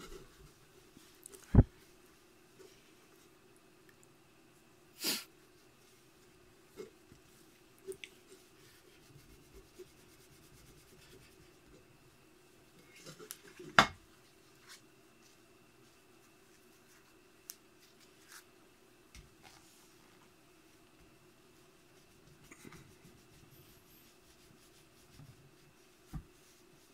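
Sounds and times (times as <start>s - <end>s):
cloth rubbing on metal: 8.2s - 11.7s, 21.6s - 26.9s.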